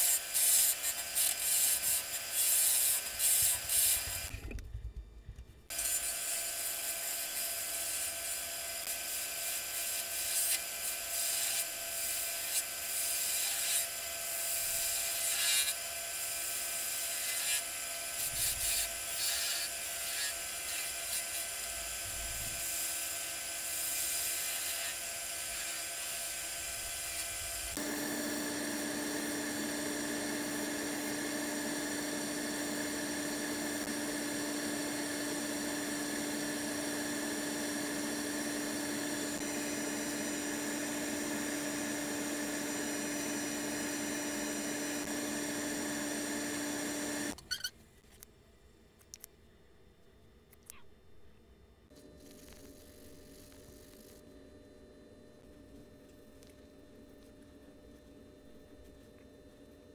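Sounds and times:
sandpaper on turning wood: 0.0 - 4.2, 9.0 - 27.8
lathe high hum: 25.3 - 47.4
gouge cutting wood on lathe: 26.7 - 47.4.

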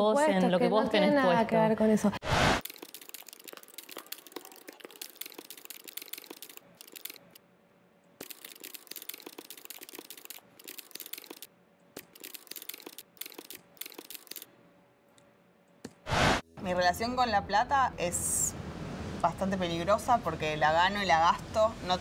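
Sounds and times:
computer keyboard typing: 2.6 - 7.4, 8.2 - 14.5.

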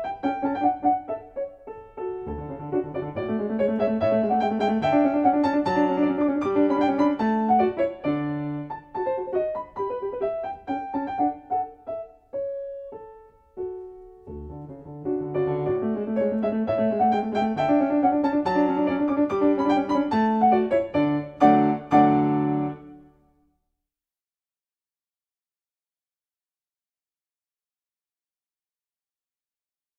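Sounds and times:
gentle piano music: 0.0 - 23.2.

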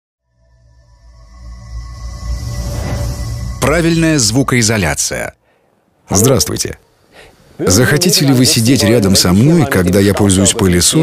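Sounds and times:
low drone with high tones: 0.2 - 5.4.

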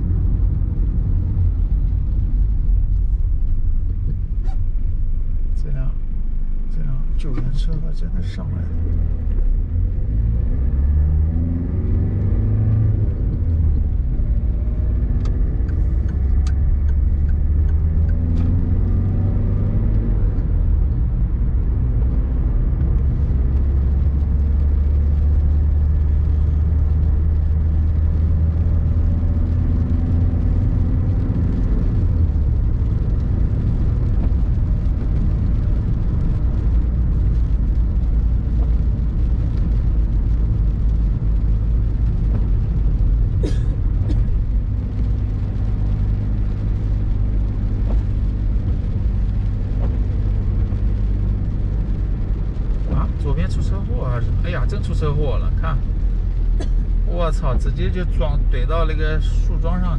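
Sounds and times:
tyres on wet road: 0.0 - 59.9
van engine accelerating: 0.0 - 59.9
light ticks: 15.2 - 18.5.

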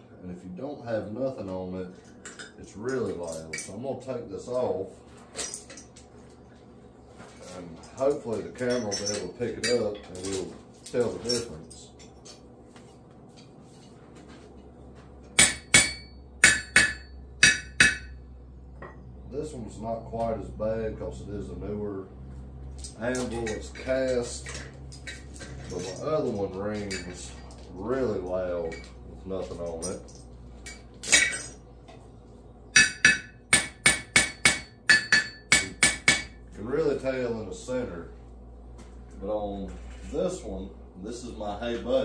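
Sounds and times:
hammer striking anvil: 15.4 - 18.2, 32.8 - 36.4.

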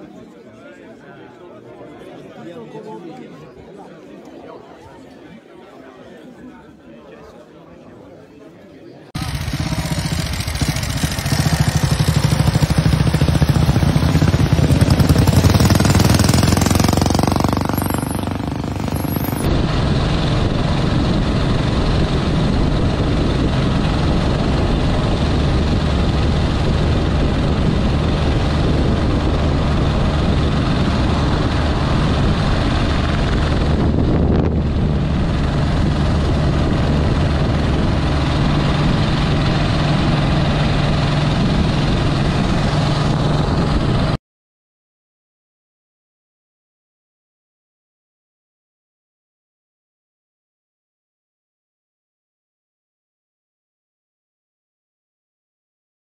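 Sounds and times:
motorcycle engine running: 9.2 - 44.2
rough engine close by: 9.2 - 44.2
wind rushing over microphone: 9.2 - 44.2.

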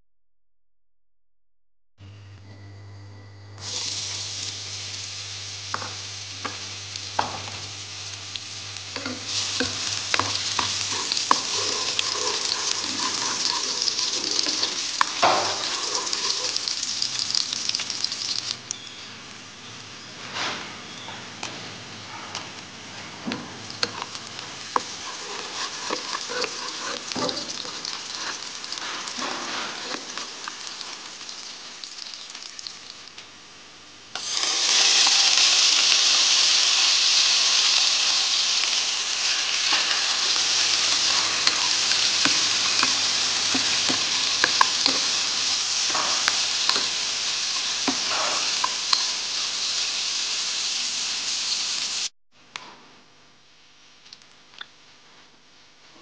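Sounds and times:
food sizzling in oil: 3.6 - 20.0, 22.7 - 33.6, 34.2 - 52.1
vegetables frying loudly: 3.6 - 20.0, 21.3 - 52.1
spatula stirring in pot: 9.0 - 18.4, 23.7 - 31.1, 39.2 - 49.3.

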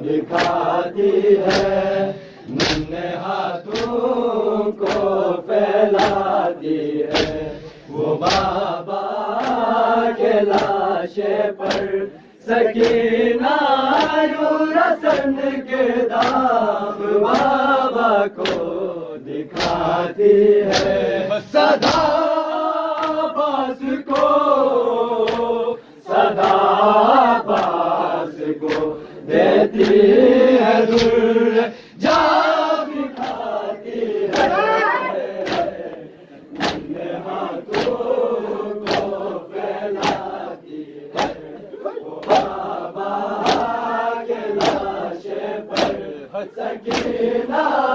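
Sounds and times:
crowd of men chanting: 0.0 - 47.9
chest-beating slaps: 0.3 - 0.7, 1.4 - 1.8, 2.4 - 3.0, 3.7 - 4.0, 4.8 - 5.2, 6.0 - 6.3, 7.0 - 8.7, 9.4 - 9.7, 10.5 - 10.8, 11.6 - 12.0, 12.8 - 13.1, 13.9 - 14.2, 16.1 - 16.5, 18.4 - 18.7, 19.5 - 19.9, 20.6 - 21.0, 21.8 - 22.2, 28.6 - 29.0, 30.9 - 31.2, 34.3 - 37.0, 37.7 - 38.0, 38.8 - 39.2, 40.0 - 40.4, 41.1 - 42.7, 43.4 - 43.8, 44.6 - 45.0, 45.7 - 46.1, 46.8 - 47.2.

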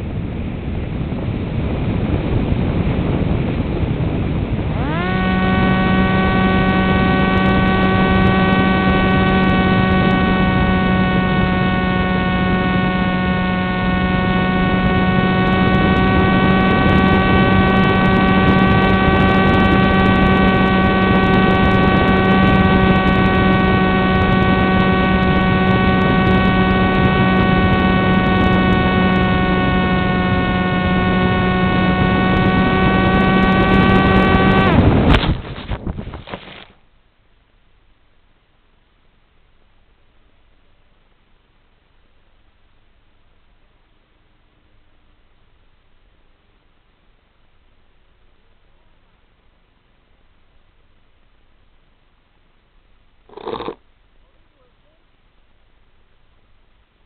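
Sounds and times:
electric motor hum: 4.4 - 35.6.

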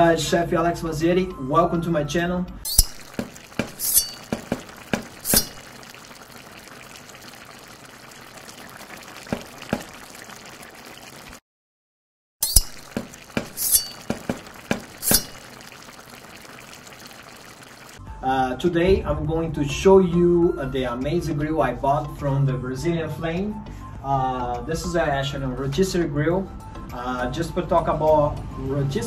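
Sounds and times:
glass-like clinks and taps: 2.7 - 5.6
steady liquid hiss: 2.7 - 11.4, 12.5 - 18.0.

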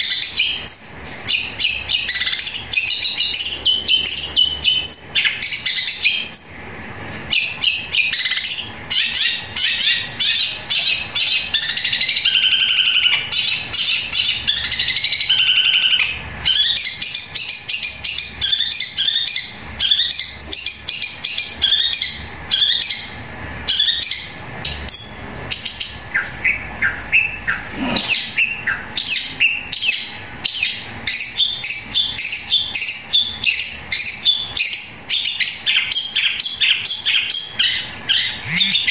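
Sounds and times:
shrike singing varied chirps: 0.0 - 6.7, 7.3 - 38.9.

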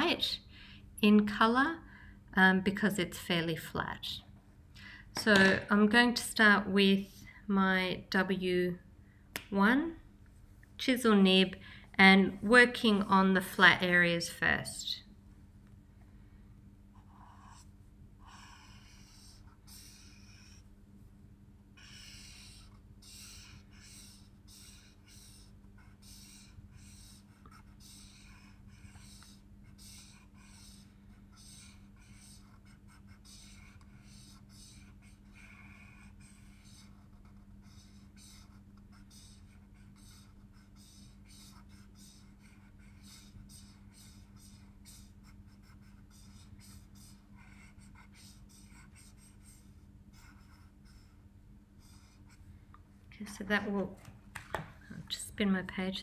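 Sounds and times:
steady low hum: 0.0 - 56.0
marker scratching on paper: 17.0 - 20.7, 21.8 - 51.2, 51.8 - 52.4.

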